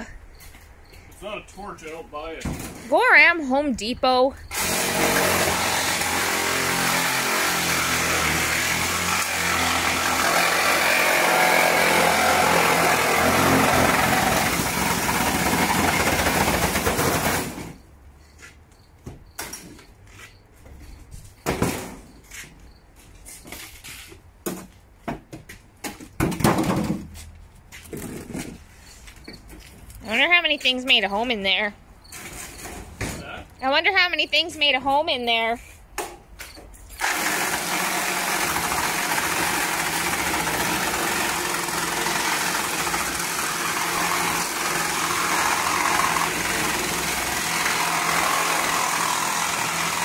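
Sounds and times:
reciprocating saw cutting sheet steel: 4.5s - 16.4s, 37.0s - 50.0s.

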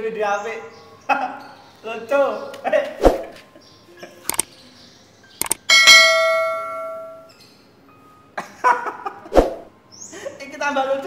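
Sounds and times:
sharp clicks: 4.3s - 4.5s, 5.4s - 5.7s
bright bell ding: 5.7s - 7.3s.

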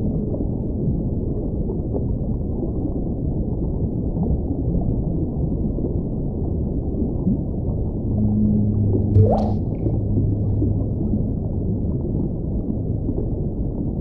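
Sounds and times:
low underwater rumble: 5.1s - 14.0s
whale moan: 7.9s - 12.5s.

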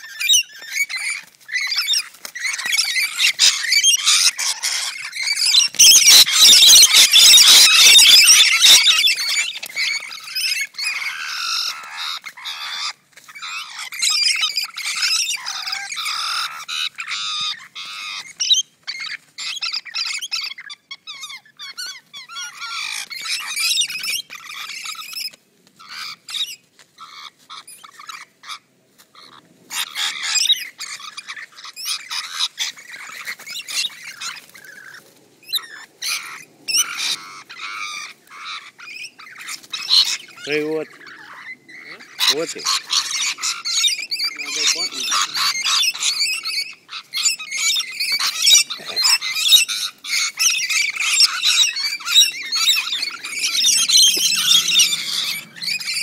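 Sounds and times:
parrots screeching and squawking: 0.0s - 56.0s.

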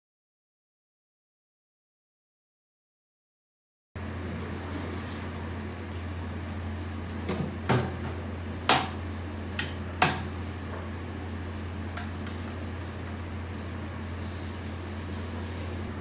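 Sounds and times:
steady low hum: 4.0s - 16.0s.

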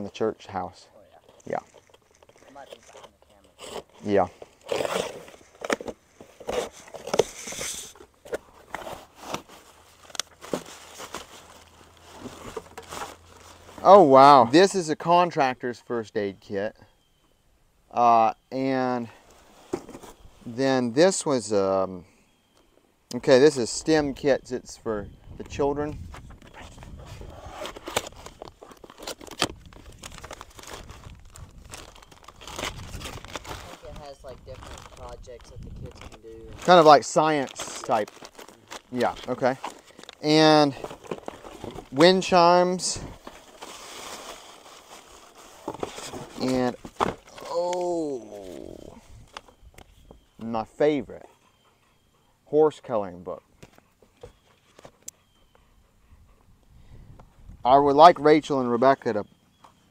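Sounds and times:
plastic bag crinkling: 28.1s - 40.2s.

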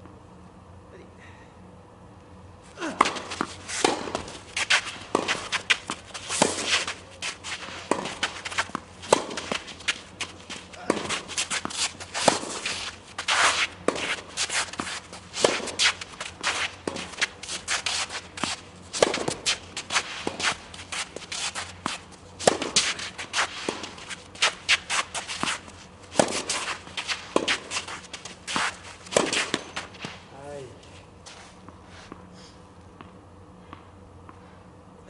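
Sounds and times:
racket hitting tennis ball: 2.8s - 30.4s
footsteps and shoe shuffling: 3.0s - 32.3s.

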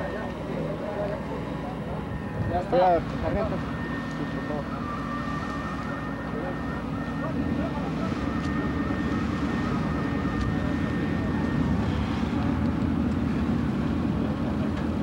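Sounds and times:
aircraft engine rumble: 0.0s - 15.0s
high engine whine: 0.0s - 15.0s.

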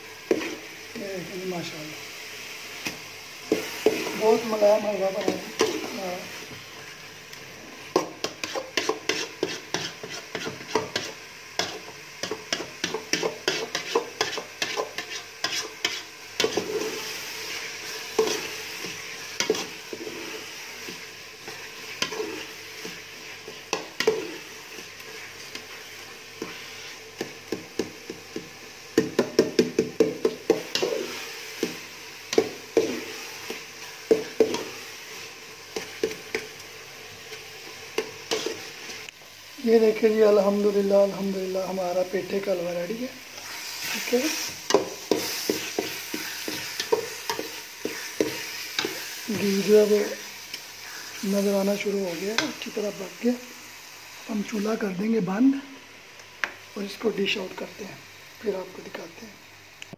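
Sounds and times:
soft sizzle: 0.0s - 59.9s
spoon scraping a metal pot: 8.3s - 17.0s.

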